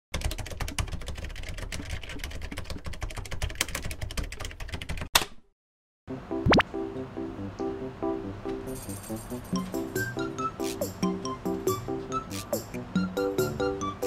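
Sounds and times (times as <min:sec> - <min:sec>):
music with rising slide: 0:06.1 - 0:14.0.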